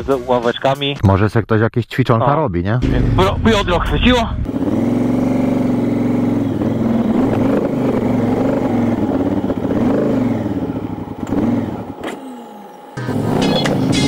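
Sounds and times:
motorcycle engine revving: 0:04.4 - 0:14.0.

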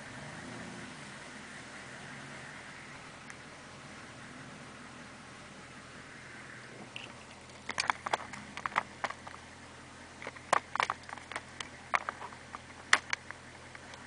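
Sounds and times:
sharp clicks and knocks: 0:07.0 - 0:09.4, 0:10.2 - 0:14.0.

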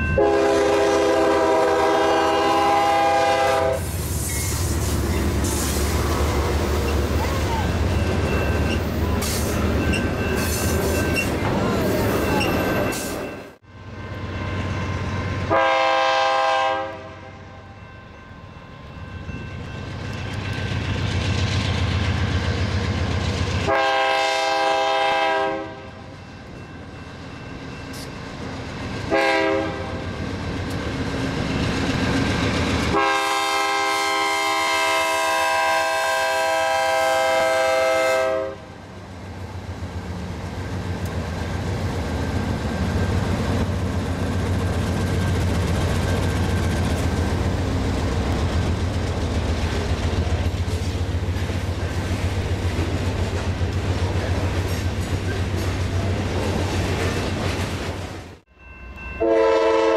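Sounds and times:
diesel engines rumbling: 0:00.0 - 0:14.0
freight train wheel rumble: 0:00.0 - 0:59.9
locomotive air horn blasts: 0:00.1 - 0:03.9, 0:15.5 - 0:17.5, 0:23.7 - 0:26.1, 0:29.1 - 0:30.0, 0:32.9 - 0:38.7, 0:59.2 - 0:59.9
rail clatter: 0:03.8 - 0:13.6, 0:40.5 - 0:58.3.

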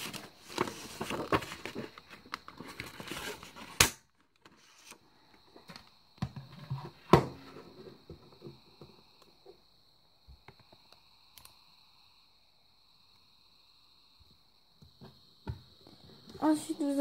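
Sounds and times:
paper rustling: 0:00.0 - 0:03.8.

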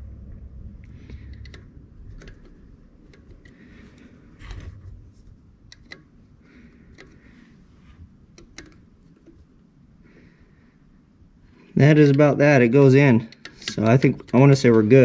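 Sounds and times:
metal pick clicking and scraping: 0:01.0 - 0:04.8, 0:05.6 - 0:07.5, 0:08.3 - 0:10.3, 0:13.2 - 0:15.0.

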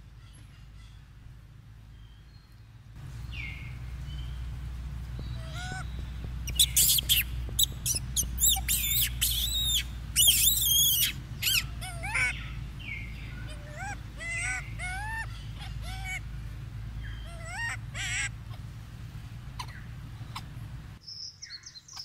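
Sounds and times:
steady low hum: 0:00.0 - 0:21.0
shrill high-pitched chirping calls: 0:03.2 - 0:16.3, 0:16.9 - 0:18.6.

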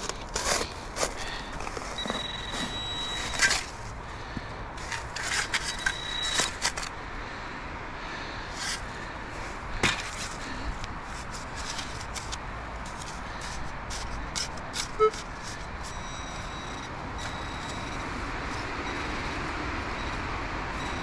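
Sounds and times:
digging in soil: 0:00.0 - 0:07.0, 0:08.4 - 0:17.9
metal detector tone: 0:01.9 - 0:03.7, 0:05.3 - 0:06.9, 0:14.8 - 0:19.4.

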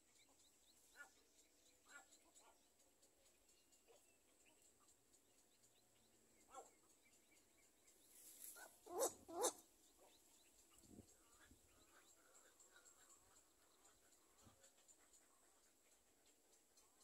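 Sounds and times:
short animal calls: 0:08.6 - 0:09.6.

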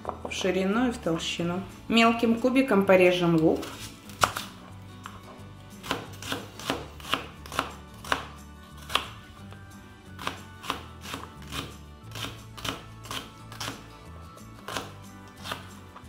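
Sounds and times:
knife chopping on cutting board: 0:05.8 - 0:09.2, 0:10.2 - 0:13.8, 0:14.6 - 0:15.7.

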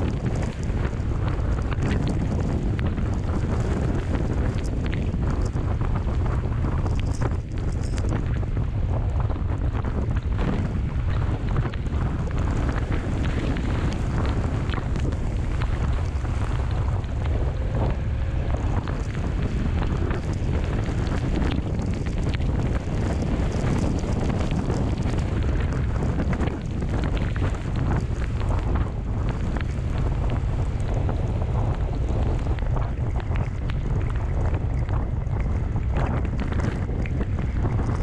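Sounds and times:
motorcycle riding on wet road: 0:00.0 - 0:38.0
wind buffeting microphone: 0:00.0 - 0:38.0.

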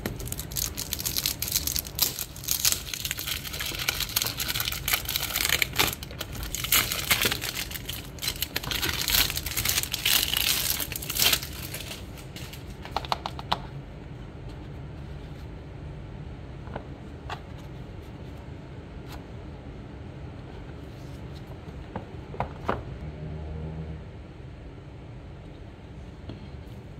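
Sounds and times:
cellophane wrap crinkling: 0:00.0 - 0:12.9.

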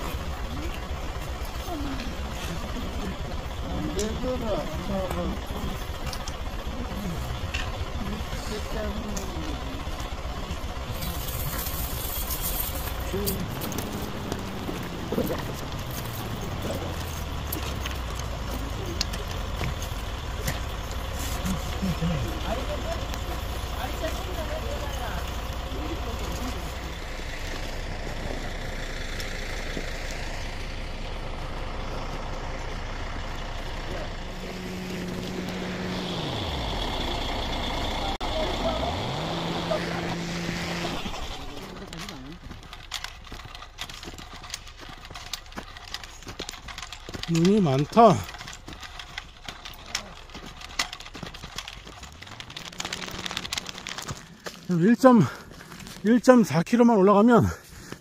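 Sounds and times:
engine humming low: 0:00.0 - 0:58.0
chain crampons clinking: 0:10.8 - 0:26.9, 0:41.0 - 0:56.1
footsteps on snow: 0:40.0 - 0:56.3, 0:57.4 - 0:58.0.

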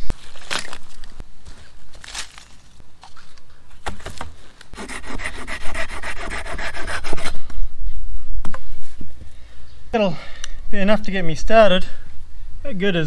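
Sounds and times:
saw rasping through branch: 0:04.8 - 0:07.3.

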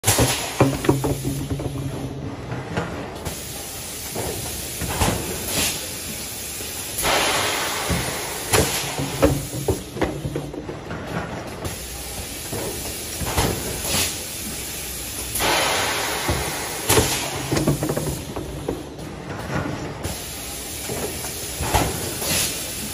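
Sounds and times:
compressed air hissing: 0:03.3 - 0:10.0, 0:11.6 - 0:18.8, 0:20.0 - 0:22.9.

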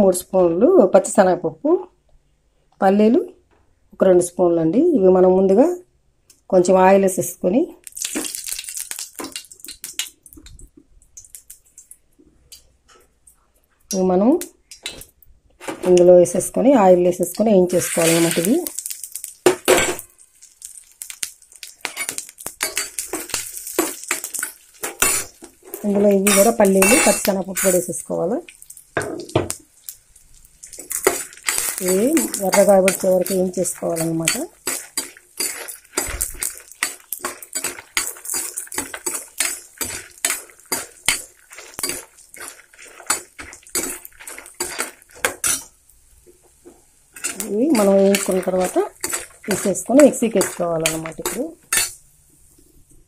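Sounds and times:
metal spoon stirring seeds in pan: 0:16.4 - 0:29.0, 0:29.8 - 0:45.8, 0:47.1 - 0:52.1
spoon clinking against pan: 0:26.2 - 0:27.8.

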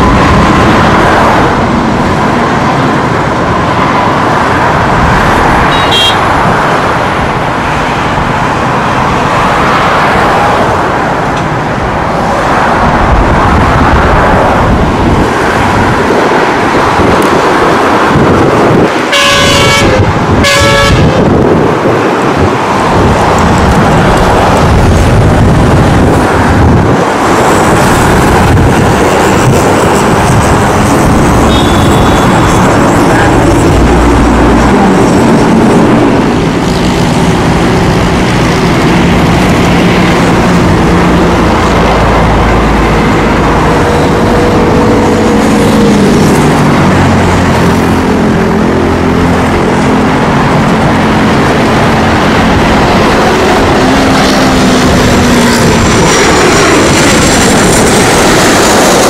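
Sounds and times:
highway traffic noise: 0:00.0 - 0:59.0
turboprop airliner landing: 0:00.0 - 0:59.0
car horn: 0:05.6 - 0:06.3, 0:19.1 - 0:21.2, 0:31.4 - 0:32.6.

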